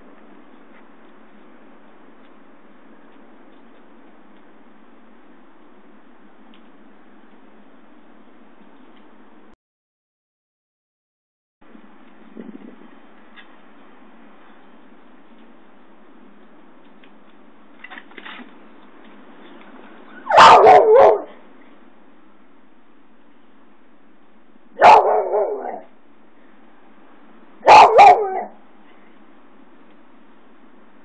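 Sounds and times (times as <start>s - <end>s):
dog barking: 20.2s - 21.4s, 24.8s - 25.9s, 27.6s - 28.6s.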